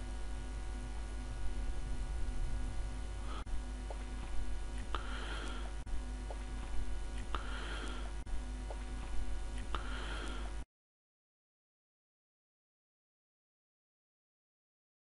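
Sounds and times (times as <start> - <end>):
low electrical hum and hiss: 0.0 - 10.6.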